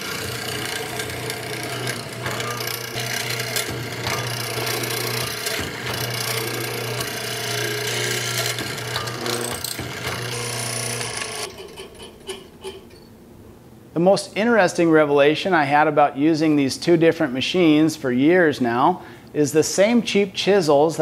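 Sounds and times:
mortiser motor humming: 0:00.0 - 0:11.5.

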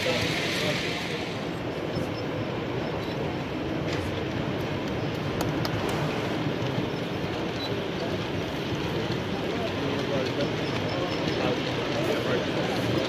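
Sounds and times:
crowd chatter: 0:00.0 - 0:13.0.

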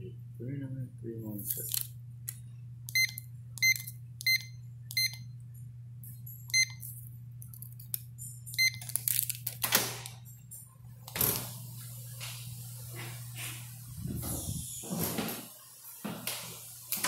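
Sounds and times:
steady low hum: 0:00.0 - 0:17.0
keypad lock beeps: 0:02.9 - 0:05.3, 0:06.5 - 0:06.8, 0:08.5 - 0:08.9.

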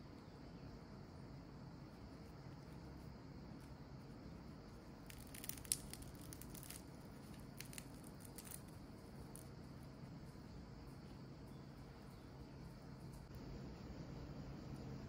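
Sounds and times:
fried potatoes crackling and crunching: 0:03.2 - 0:13.3.

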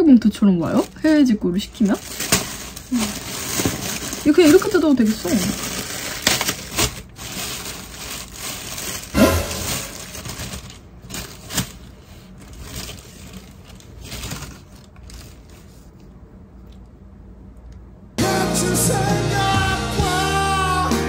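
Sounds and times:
plastic bag crinkling: 0:00.6 - 0:16.0.

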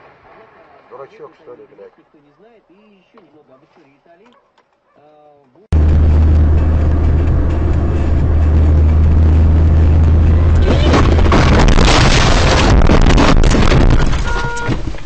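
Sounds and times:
car engine and road noise: 0:05.7 - 0:15.0.

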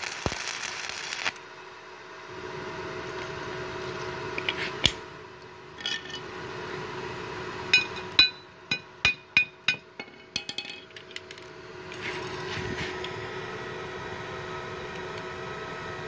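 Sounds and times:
steady hum: 0:00.0 - 0:16.0
hammer tapping steel: 0:07.8 - 0:10.9.

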